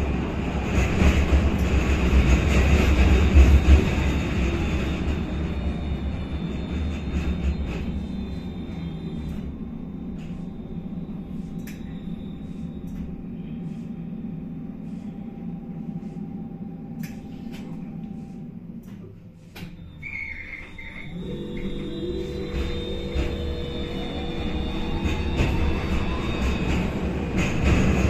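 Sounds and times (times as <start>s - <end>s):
tram rumbling on rails: 0.0s - 28.0s
electrical hum with whine: 5.5s - 26.8s.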